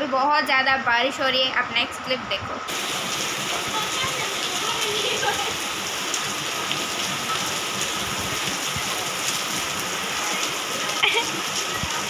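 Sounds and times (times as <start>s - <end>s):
heavy rain on concrete: 2.6s - 12.0s.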